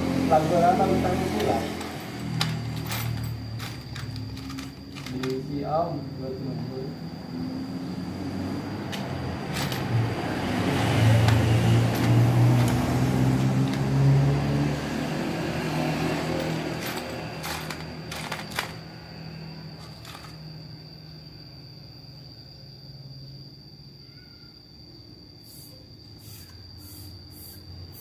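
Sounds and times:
vehicle engine passing: 0:00.0 - 0:03.0, 0:07.3 - 0:18.1
small metal parts clicking: 0:01.4 - 0:05.6, 0:11.2 - 0:13.9, 0:16.4 - 0:18.9, 0:19.8 - 0:20.4.

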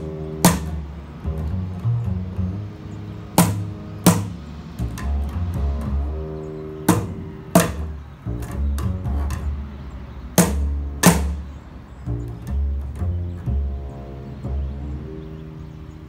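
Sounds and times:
cajon hits: 0:00.0 - 0:00.8, 0:03.4 - 0:05.8, 0:06.9 - 0:09.4, 0:10.4 - 0:11.5
plucked double bass: 0:00.0 - 0:16.0.

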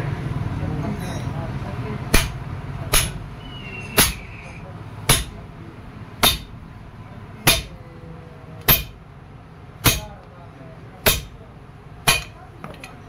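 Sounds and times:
hammer striking metal: 0:02.1 - 0:03.2, 0:03.9 - 0:04.3, 0:05.1 - 0:05.4, 0:06.2 - 0:06.6, 0:07.4 - 0:07.8, 0:08.6 - 0:09.0, 0:09.8 - 0:10.2, 0:11.0 - 0:11.4, 0:12.0 - 0:12.4.

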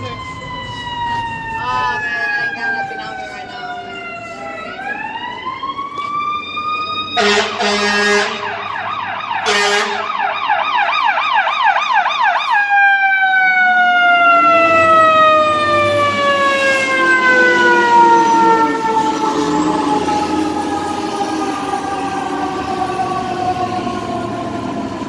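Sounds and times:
truck engine: 0:00.0 - 0:12.5, 0:13.4 - 0:25.0
fire engine siren wailing: 0:00.0 - 0:25.0
horn blast: 0:07.2 - 0:08.6, 0:09.4 - 0:10.1.

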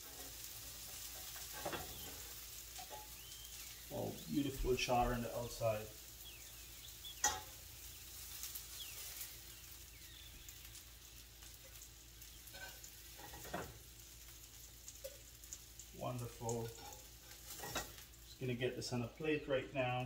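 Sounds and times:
oil sizzling in a frying pan: 0:00.0 - 0:20.0
spatula clinking on pan: 0:07.2 - 0:07.6.

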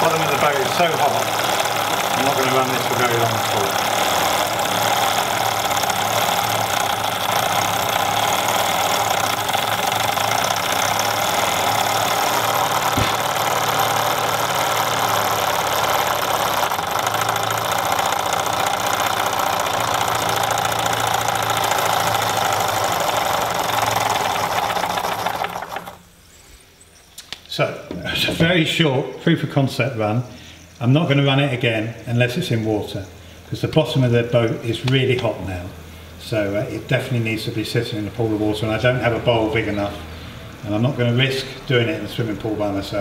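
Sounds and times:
toy steam engine clattering: 0:00.0 - 0:26.1.

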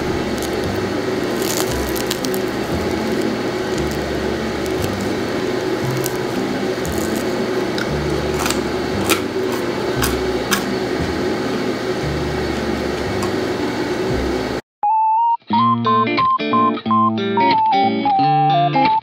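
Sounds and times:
bread crust crackling: 0:00.0 - 0:10.8
steady hum: 0:00.0 - 0:14.6.

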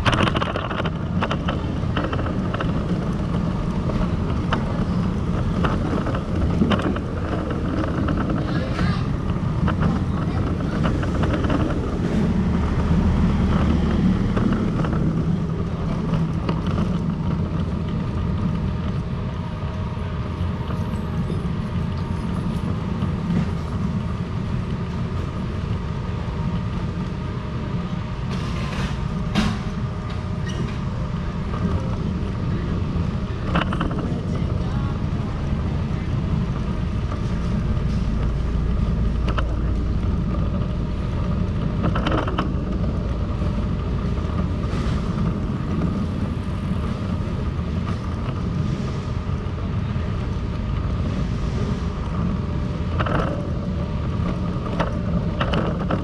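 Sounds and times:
city traffic rumble: 0:00.0 - 0:56.0.

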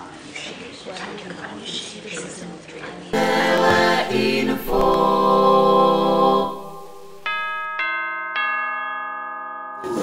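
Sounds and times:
group singing a cappella: 0:03.1 - 0:07.6.

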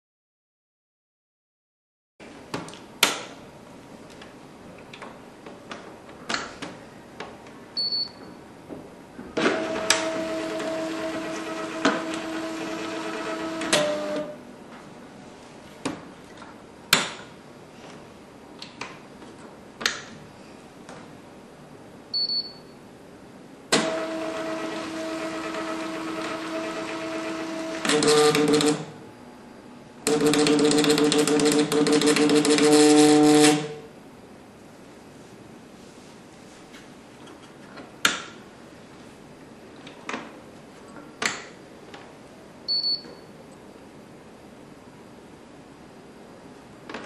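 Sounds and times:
printer feed motor hum: 0:09.4 - 0:14.4, 0:23.7 - 0:29.0, 0:30.0 - 0:33.8.

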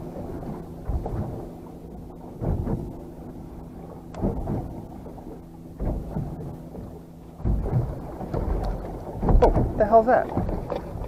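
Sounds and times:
waves slapping boat hull: 0:00.0 - 0:11.0
wind on microphone: 0:00.0 - 0:11.0.

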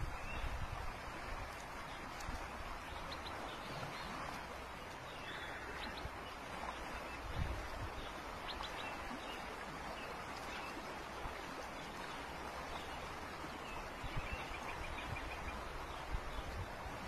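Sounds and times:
river flowing: 0:00.0 - 0:17.0
birds chirping: 0:02.8 - 0:07.3.

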